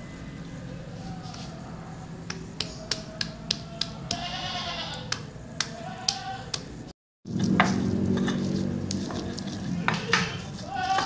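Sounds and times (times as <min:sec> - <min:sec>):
bleat-like call: 0:04.1 - 0:05.1, 0:05.7 - 0:06.5, 0:09.8 - 0:11.0.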